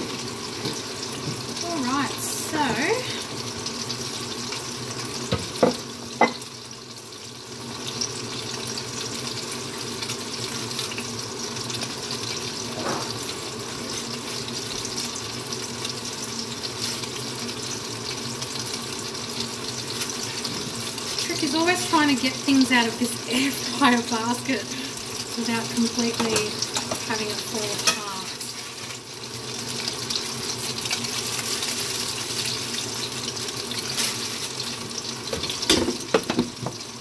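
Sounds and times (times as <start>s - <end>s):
tofu sizzling in a pan: 0.0s - 37.0s.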